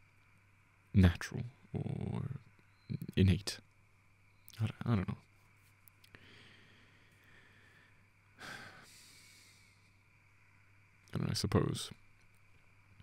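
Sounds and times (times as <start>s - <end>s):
soft breath into microphone: 6.1s - 10.8s.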